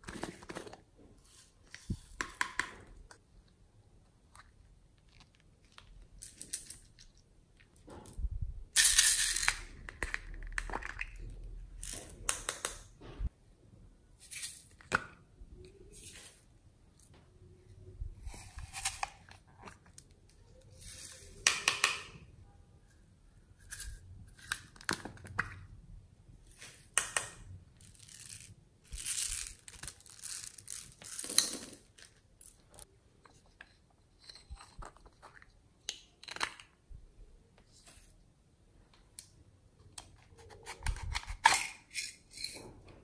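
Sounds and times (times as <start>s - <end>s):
plastic containers crinkling and clicking: 0.0s - 1.0s, 24.4s - 25.7s.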